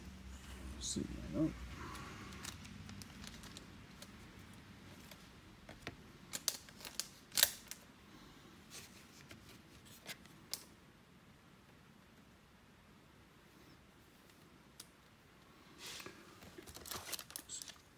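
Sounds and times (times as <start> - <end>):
trading cards clicking and snapping: 5.1 - 7.8.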